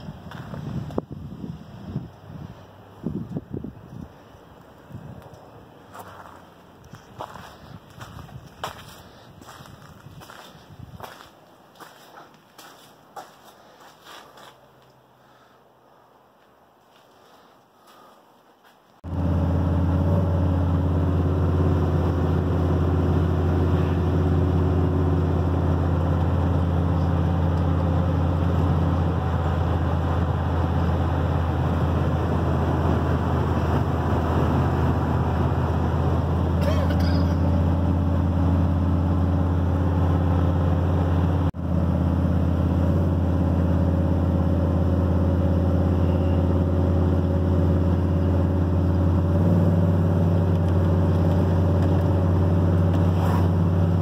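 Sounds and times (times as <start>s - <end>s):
pickup truck engine droning: 19.0s - 54.0s.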